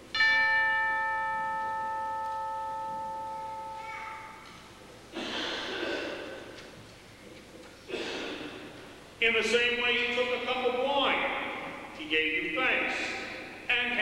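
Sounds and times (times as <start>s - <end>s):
altar bell ringing: 0.0s - 4.9s.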